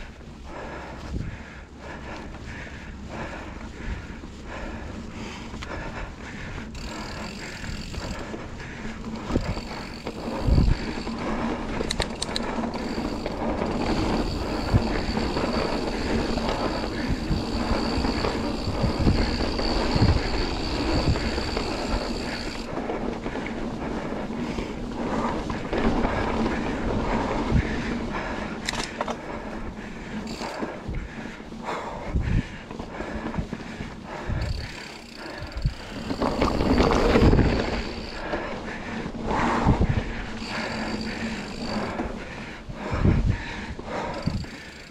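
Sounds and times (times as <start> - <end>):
bike tyres rolling and skidding on dirt: 0.0 - 44.9
bike thumps and rattles: 34.3 - 38.5
wind on microphone: 42.7 - 44.5.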